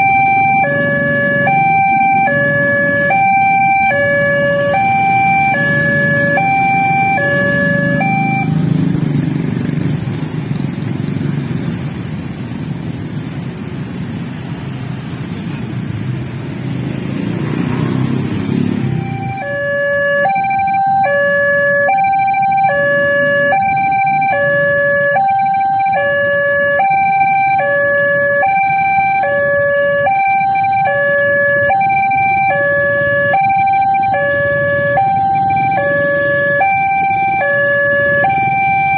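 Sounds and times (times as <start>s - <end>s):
level crossing two-tone alarm: 0.0s - 8.6s, 18.8s - 38.9s
motorcycles and cars moving off: 0.0s - 38.9s.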